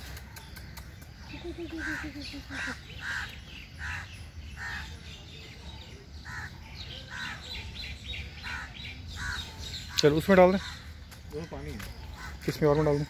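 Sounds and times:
small birds chirping: 0.0 - 13.0
crows cawing: 8.4 - 10.9, 12.1 - 12.5.

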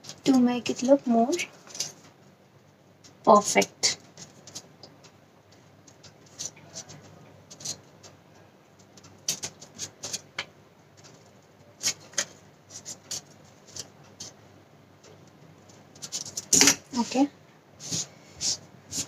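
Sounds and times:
scissors snipping paper: 9.0 - 10.2, 11.8 - 14.4.

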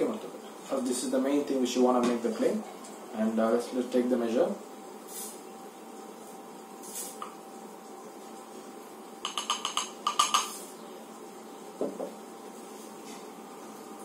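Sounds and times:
soft knock: 11.8 - 12.1.

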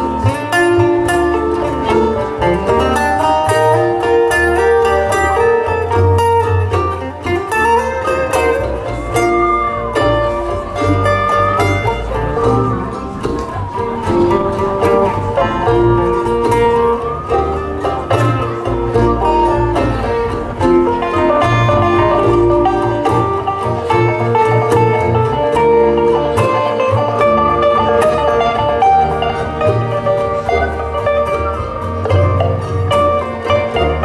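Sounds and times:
bowed fiddle: 0.0 - 34.0
picked string instrument: 0.0 - 34.0
strummed acoustic guitar: 0.0 - 34.0
pulsing low end: 8.6 - 24.3.

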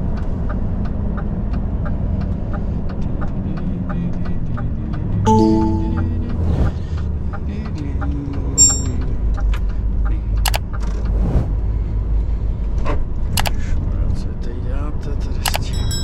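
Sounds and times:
brief high beep: 5.3 - 7.0, 8.6 - 9.0
short pitched tone: 5.3 - 7.3
light repeating ticks: 9.7 - 10.8, 15.5 - 16.0
sharp click: 15.5 - 15.7.

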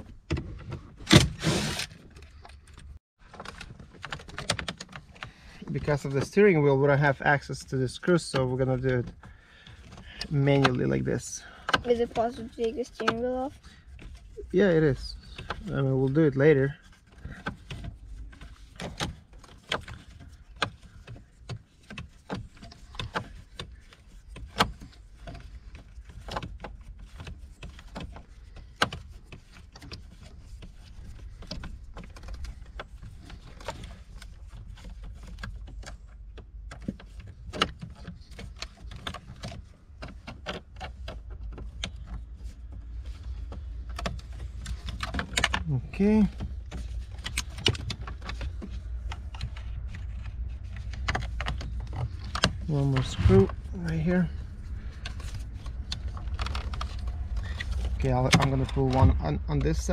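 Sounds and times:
steady low rumble: 45.6 - 59.9.

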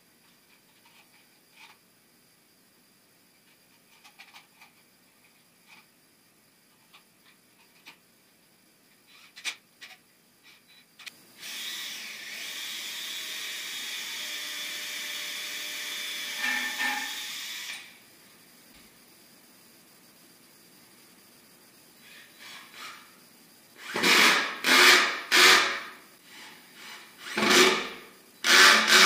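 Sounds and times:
cordless drill driving screw: 28.4 - 29.0.

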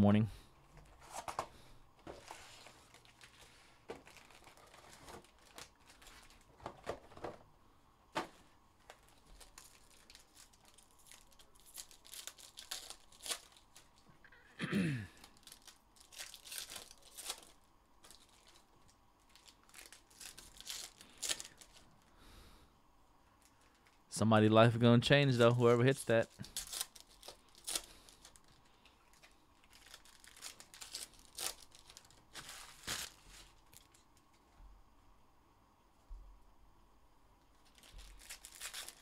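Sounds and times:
card wrappers ripping and crinkling: 1.0 - 7.3, 8.2 - 14.4, 15.1 - 22.1, 26.0 - 34.0, 37.6 - 39.0.

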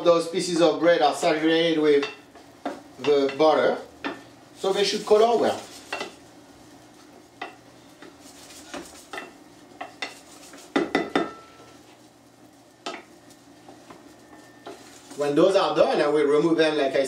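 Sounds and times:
butter sizzling: 0.0 - 16.4
wooden spoon scraping a pan: 4.6 - 12.2, 13.6 - 15.5.

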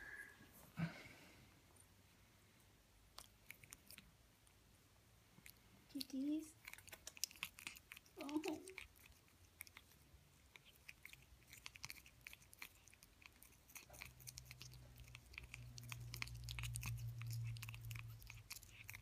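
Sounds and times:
low steady hum: 0.0 - 19.0
cat chewing plastic toothbrush: 3.1 - 4.1, 5.4 - 19.0.

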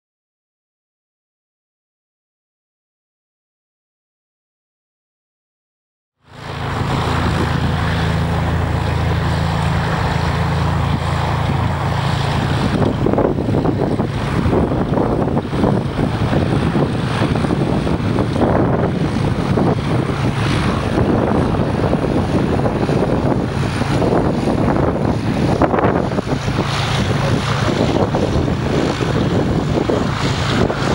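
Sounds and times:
propeller aircraft engine humming: 6.2 - 30.9
wind buffeting microphone: 6.3 - 30.9.

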